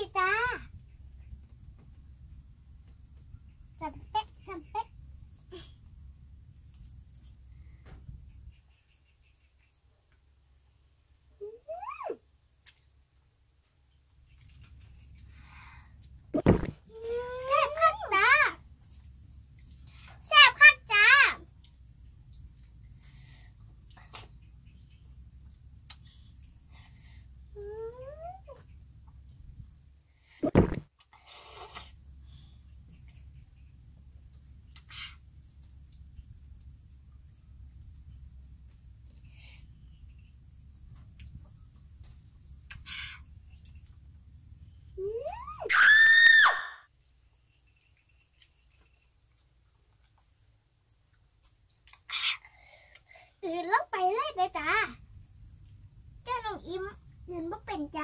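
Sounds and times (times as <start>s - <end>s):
crickets buzzing: 0.0s - 58.0s
insects chirring: 0.0s - 58.0s
child squealing: 45.0s - 46.8s.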